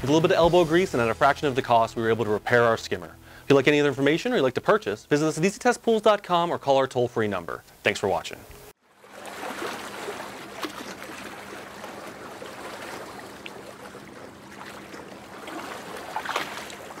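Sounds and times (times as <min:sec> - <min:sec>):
water lapping and trickling: 0:08.7 - 0:17.0.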